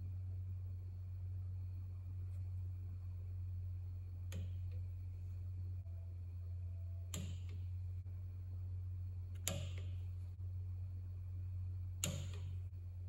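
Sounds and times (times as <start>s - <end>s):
steady low hum: 0.0s - 13.0s
torque wrench clicking: 12.0s - 12.6s.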